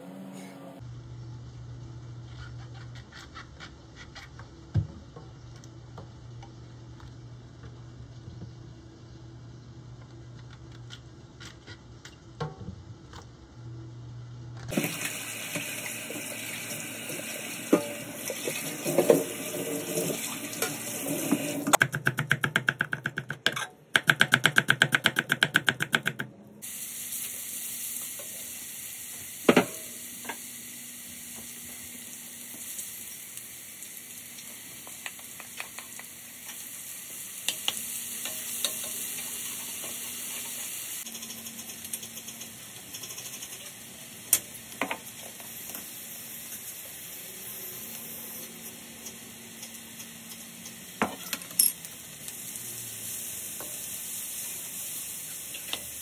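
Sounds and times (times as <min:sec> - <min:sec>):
food sizzling in oil: 0:14.7 - 0:21.8, 0:26.6 - 0:56.0.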